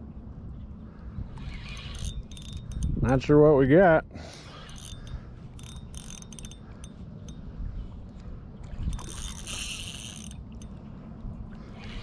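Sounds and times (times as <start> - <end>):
fishing reel cranking: 1.3 - 3.4, 4.3 - 7.4, 8.9 - 10.7, 11.8 - 12.0.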